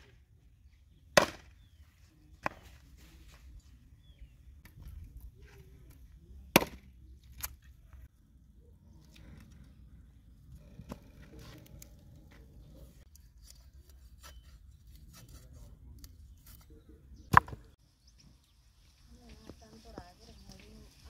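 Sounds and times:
cleaver chopping on wooden board: 1.2s - 1.5s.

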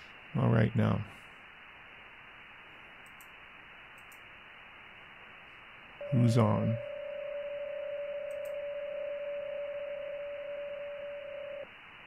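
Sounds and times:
shortwave receiver hiss: 0.0s - 12.0s
faint clicks: 3.0s - 3.4s, 4.0s - 4.3s
steady digital signal tone: 6.0s - 11.7s.

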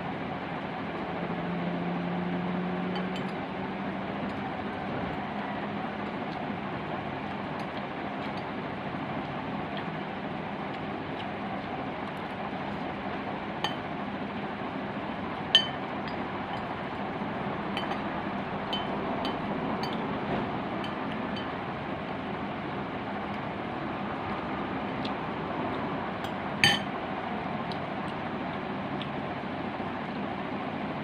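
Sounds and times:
utensils clinking on glass bowl: 15.6s - 15.8s, 17.8s - 18.0s, 18.8s - 20.0s, 26.6s - 26.9s.

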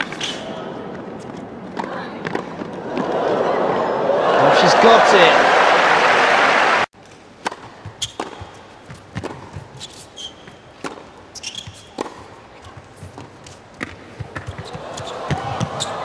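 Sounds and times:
tennis ball bouncing: 7.4s - 15.9s
tennis ball hit by racquets: 7.4s - 15.9s
sneaker squeaks on court: 7.9s - 8.6s, 9.2s - 12.3s, 13.2s - 16.0s.

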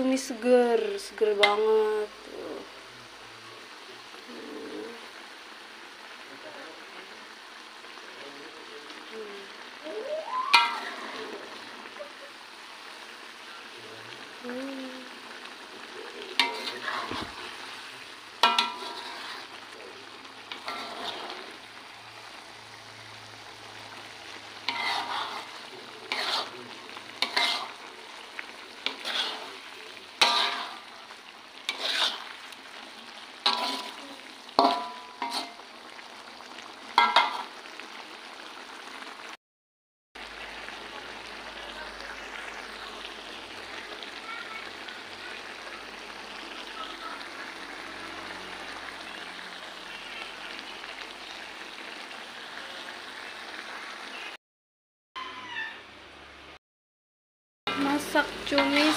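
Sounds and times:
food sizzling: 0.0s - 39.4s, 40.2s - 54.4s, 55.2s - 56.6s, 57.7s - 58.9s
spatula scraping a pan: 10.5s - 11.4s, 16.3s - 19.6s, 20.5s - 21.6s, 24.6s - 27.9s, 28.8s - 32.6s, 33.4s - 35.6s, 37.0s - 37.5s, 57.7s - 58.9s.

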